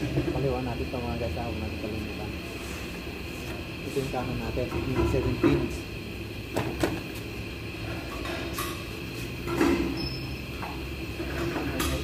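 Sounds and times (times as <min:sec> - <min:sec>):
low background hum: 0:00.0 - 0:12.0
clicks and knocks of handled fan: 0:06.5 - 0:07.1.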